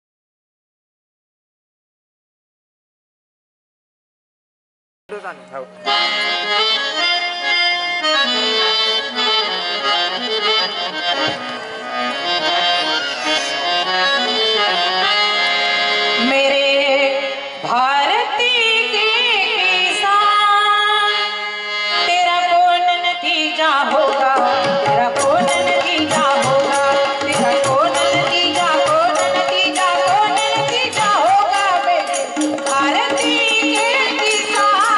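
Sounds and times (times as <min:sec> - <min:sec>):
harmonium melody: 0:05.1 - 0:34.9
tabla: 0:05.1 - 0:34.9
woman singing: 0:16.2 - 0:21.4, 0:22.0 - 0:34.9.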